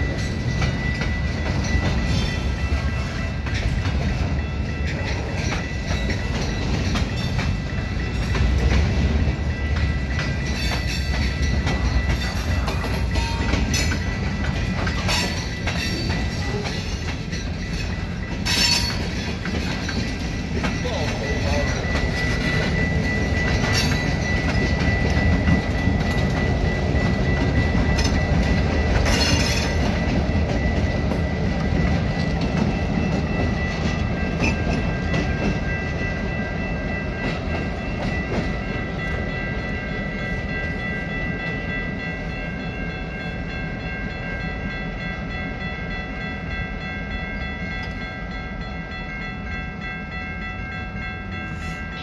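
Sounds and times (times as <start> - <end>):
train wheels clacking over rail joints: 0.0 - 39.4
high ringing tones: 0.0 - 52.0.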